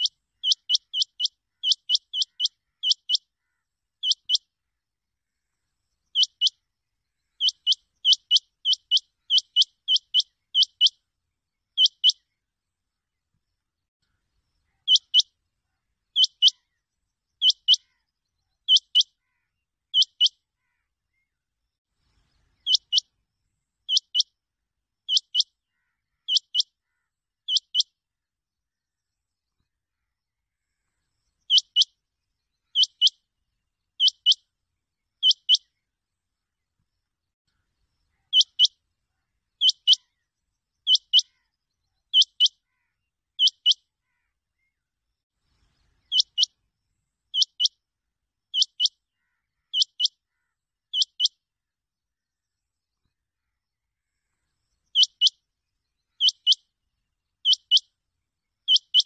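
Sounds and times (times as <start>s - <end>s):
rain quail calling: 0.0s - 3.2s.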